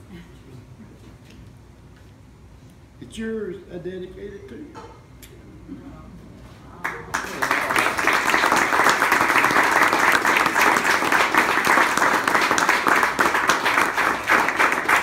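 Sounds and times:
people applauding: 6.8s - 15.0s.

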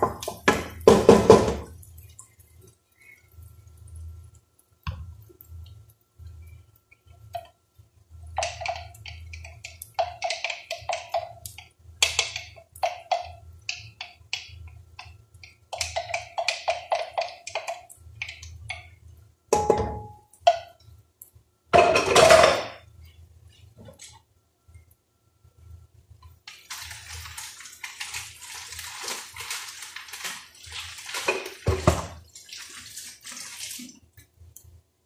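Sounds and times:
utensils tapping on pot: 8.3s - 20.8s
cookware clang: 19.5s - 20.2s, 21.8s - 22.8s
cookware clatter: 19.5s - 20.7s, 21.8s - 22.8s.

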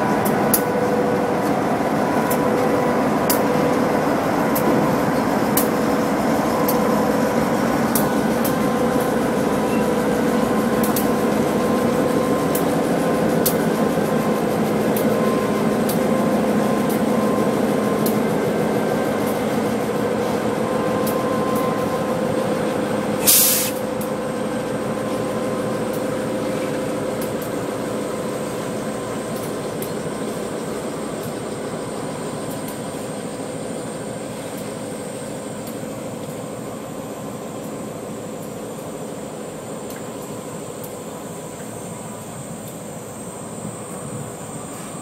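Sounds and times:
train wheels rumbling on rail: 0.0s - 45.0s
short sharp hiss: 23.2s - 23.8s.

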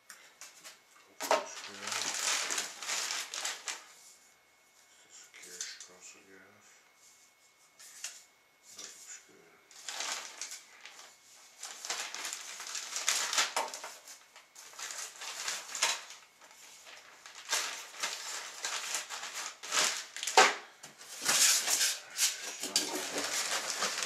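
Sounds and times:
plastic bags rustling and crinkling: 0.5s - 4.1s, 9.7s - 24.0s.

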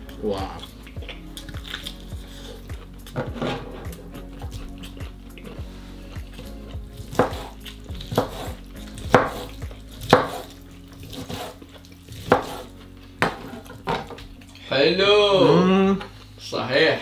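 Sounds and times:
knife cutting onto wooden table: 7.0s - 11.6s, 12.2s - 14.2s.

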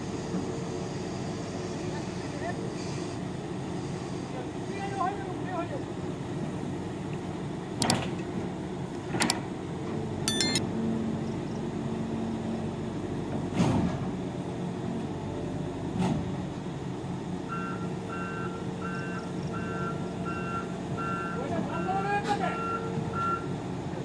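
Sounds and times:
travel alarm beeping: 10.3s - 10.6s.

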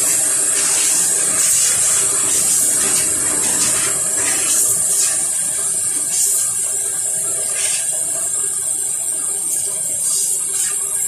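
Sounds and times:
spray hisses: 0.0s - 3.8s, 6.1s - 6.6s, 10.0s - 10.8s.

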